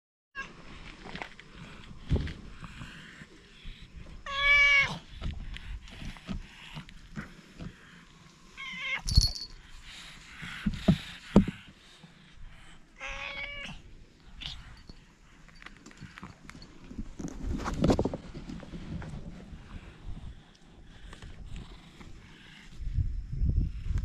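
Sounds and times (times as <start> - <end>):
cat meowing: 13.0 - 13.8.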